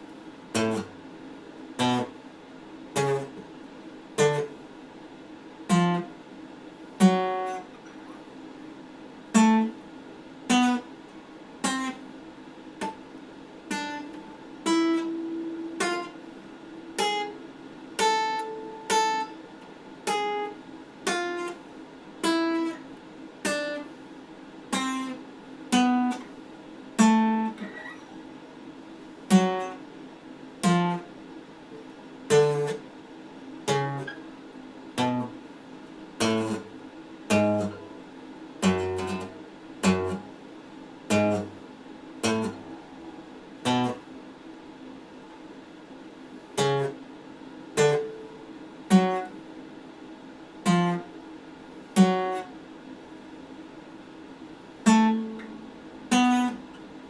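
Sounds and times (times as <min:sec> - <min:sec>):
acoustic guitar plucked slowly: 0:00.5 - 0:01.0, 0:01.8 - 0:02.2, 0:02.9 - 0:03.4, 0:04.2 - 0:04.6, 0:05.7 - 0:06.1, 0:07.0 - 0:08.3, 0:09.3 - 0:09.8, 0:10.5 - 0:10.9, 0:11.6 - 0:12.0, 0:13.7 - 0:21.6, 0:24.7 - 0:26.3, 0:27.0 - 0:28.3, 0:29.3 - 0:29.8, 0:30.6 - 0:31.1, 0:32.3 - 0:32.8, 0:33.7 - 0:34.2, 0:35.0 - 0:35.4, 0:36.2 - 0:36.7, 0:37.3 - 0:40.4, 0:41.1 - 0:41.6, 0:42.2 - 0:44.1, 0:46.6 - 0:47.0, 0:47.8 - 0:49.4, 0:50.6 - 0:51.1, 0:52.0 - 0:52.5, 0:54.8 - 0:56.8.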